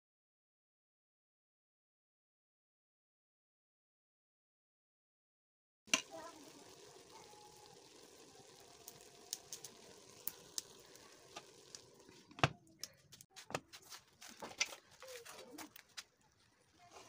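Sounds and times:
water crackling and popping in pot: 5.9s - 17.0s.

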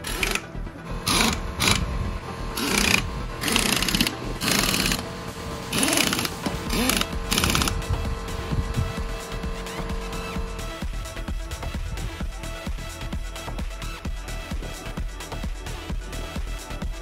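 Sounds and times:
pneumatic impact wrench bursts: 0.0s - 10.8s
background music: 0.0s - 17.0s.

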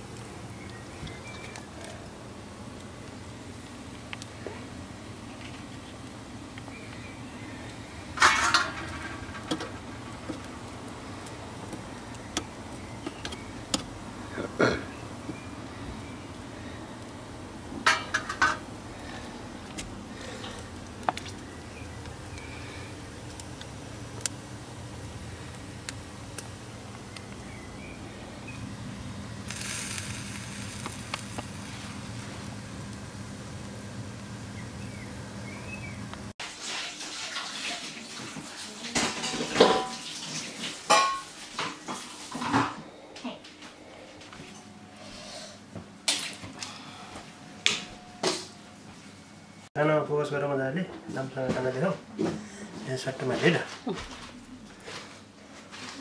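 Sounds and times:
meat sizzling: 4.8s - 42.4s
metal tongs scraping grill grate: 8.2s - 10.4s, 17.8s - 18.6s
loud hiss: 29.4s - 33.2s.

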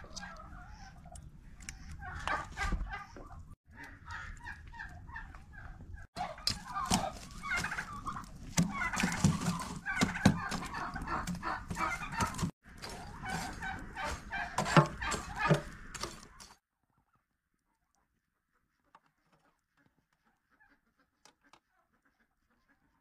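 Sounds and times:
chickens clucking: 0.0s - 16.5s.

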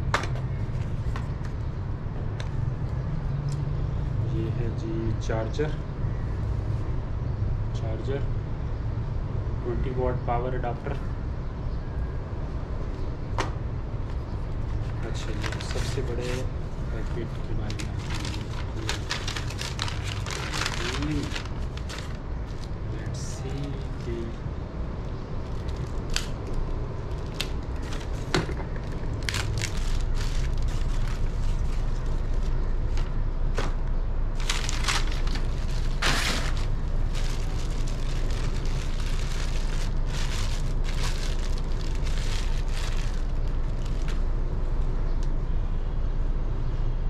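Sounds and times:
steady low rumble: 11.1s - 46.4s
packaging crinkling and rustling: 14.5s - 24.1s, 25.4s - 33.8s, 34.4s - 44.3s
packaging tearing rips: 17.8s - 22.6s, 25.5s - 28.3s, 34.4s - 44.2s.

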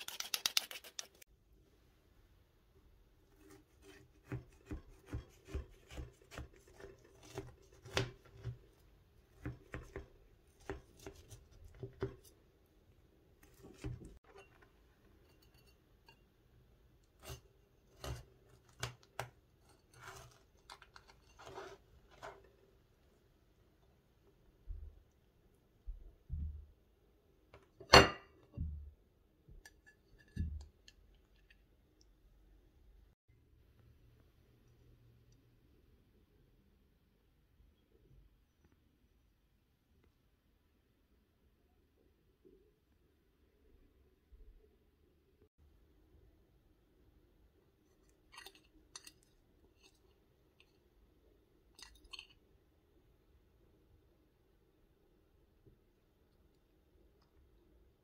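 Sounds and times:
knife sawing through crunchy topping: 3.4s - 8.5s, 19.9s - 22.4s.

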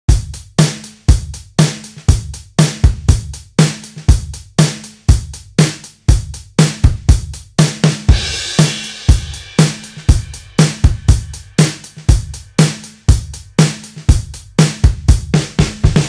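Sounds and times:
kick and snare drum beat: 0.0s - 16.0s.

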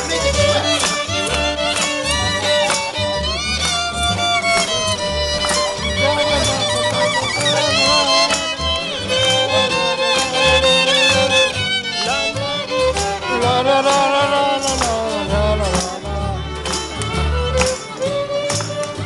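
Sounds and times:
fiddle melody: 0.0s - 19.0s
low bass notes: 0.0s - 19.0s
strummed strings: 0.0s - 19.0s.

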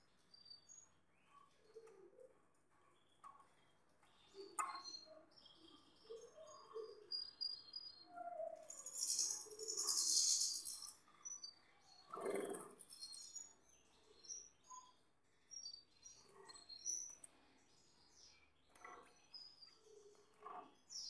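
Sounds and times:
canaries chirping: 2.3s - 15.0s.

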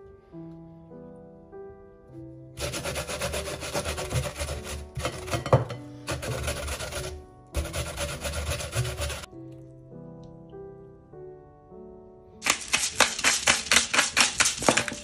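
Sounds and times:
onion grating on metal grater: 2.6s - 9.3s, 12.4s - 15.0s.

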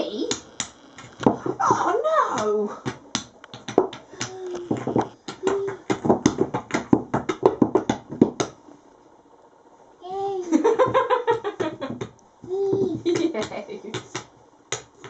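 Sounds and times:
person's voice: 0.0s - 0.4s, 4.2s - 5.9s.

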